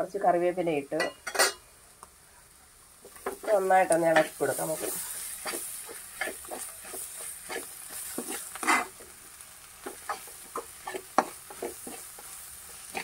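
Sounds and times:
frying sizzle: 0.0s - 13.0s
spoon scraping metal pan: 1.0s - 1.6s, 3.2s - 9.0s, 9.8s - 13.0s.

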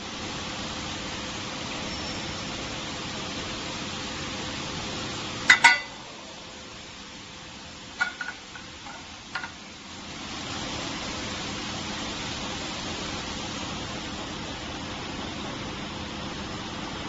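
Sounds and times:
steady hiss: 0.0s - 17.0s
tin can clinking: 5.5s - 6.0s, 8.0s - 9.6s.

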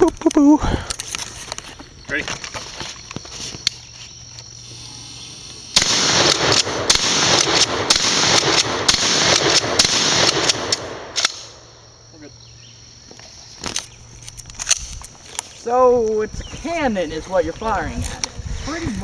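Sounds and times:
rapid gunshots: 5.8s - 11.4s.

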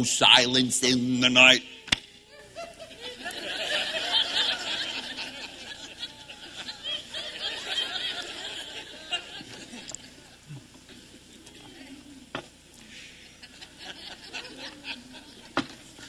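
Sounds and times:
audience laughing: 2.3s - 12.0s, 13.1s - 16.0s.

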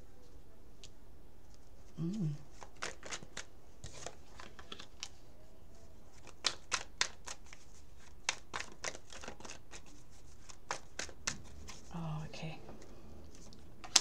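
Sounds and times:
playing cards shuffled by hand: 0.8s - 5.2s, 6.1s - 12.0s, 13.3s - 14.0s.

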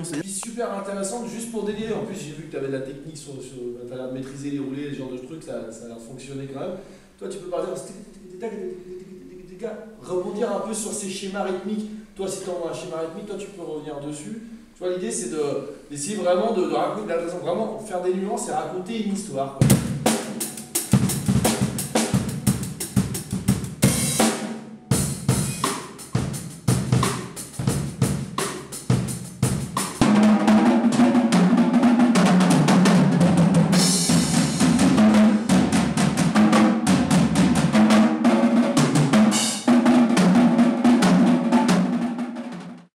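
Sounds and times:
drum kits playing: 0.0s - 0.3s, 19.6s - 42.9s
drum and cymbal roll: 19.6s - 42.9s.

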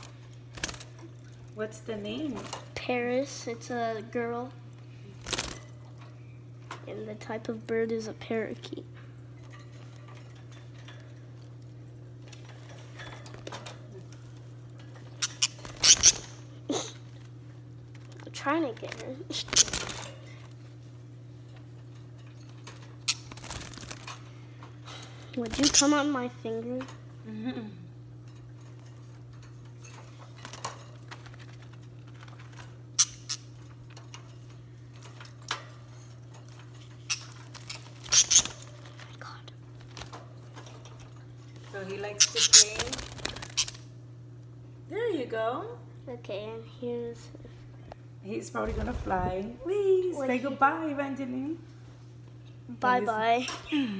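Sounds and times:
steady low hum: 0.0s - 53.9s
wire birdcage rattling: 0.5s - 3.2s, 9.4s - 16.5s, 17.8s - 20.2s, 21.4s - 24.3s, 25.4s - 26.2s, 28.2s - 39.1s, 39.7s - 43.9s
wire cage rattling: 28.2s - 39.1s.

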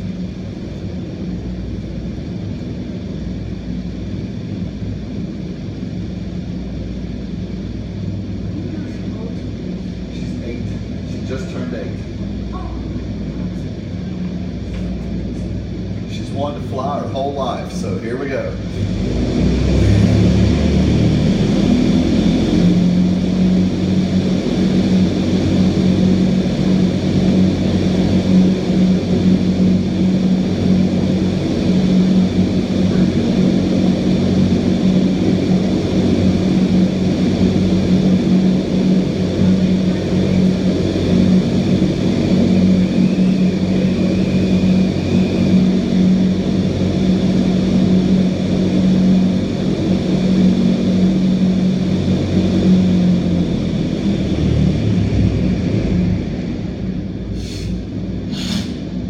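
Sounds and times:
loud rush of air: 0.0s - 59.0s
low fan hum: 0.0s - 59.0s.

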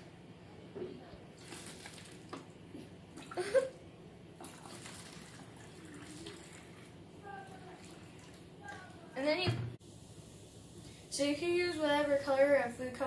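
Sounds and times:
liquid trickling and gurgling: 4.4s - 9.0s.

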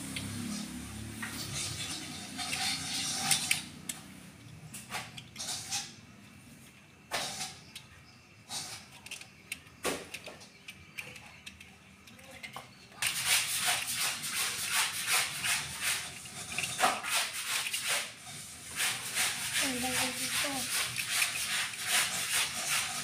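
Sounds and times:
plastic toy clicking: 9.0s - 13.9s
scratchy rustling: 13.1s - 23.0s.

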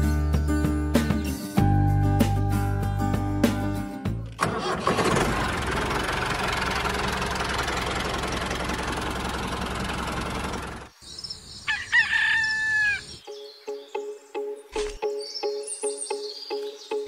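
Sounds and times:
tractor diesel engine rumbling: 4.3s - 10.9s
bird chirps: 10.9s - 17.0s.

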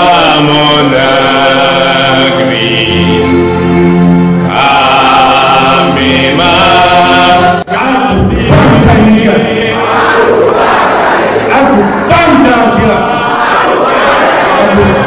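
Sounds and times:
choir-like chant singing: 0.0s - 15.0s
crowd shouting together: 6.9s - 15.0s.

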